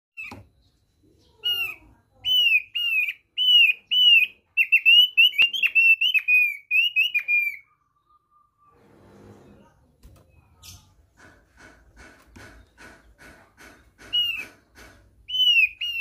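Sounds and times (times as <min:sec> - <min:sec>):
bird singing clear whistles: 0:01.3 - 0:08.8, 0:15.3 - 0:16.0.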